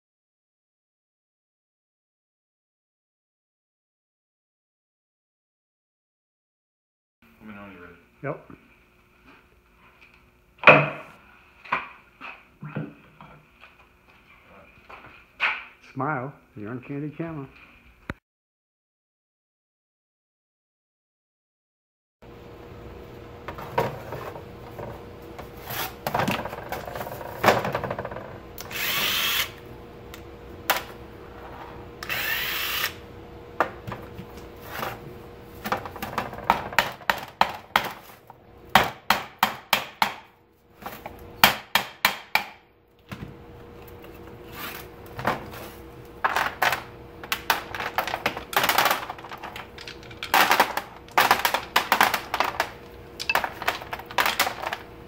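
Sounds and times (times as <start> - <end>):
rollers clattering onto metal tray: 33.7 - 38.2, 45.2 - 54.9.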